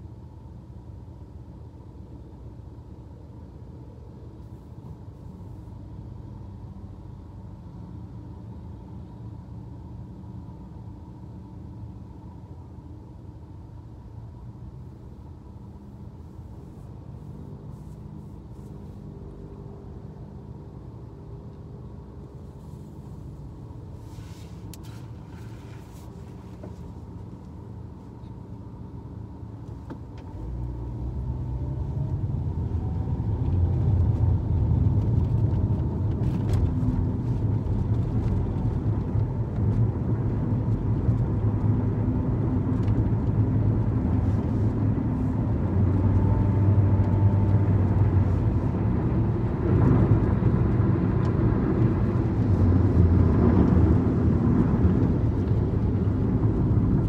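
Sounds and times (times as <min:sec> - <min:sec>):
car engine and road rumble: 0:00.0 - 0:57.0.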